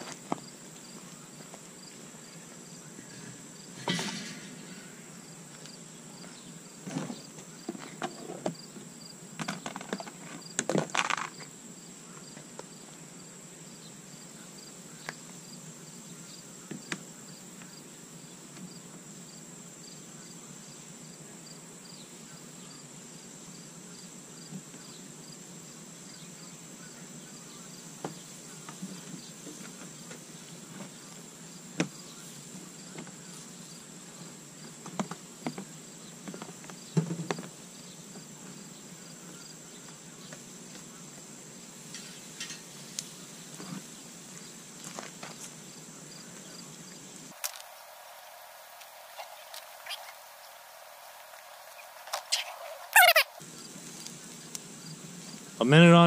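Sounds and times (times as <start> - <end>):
crickets chirping: 0.0 - 56.0
high insect drone: 0.0 - 56.0
metal grill grate clattering: 3.8 - 4.8, 41.9 - 42.7.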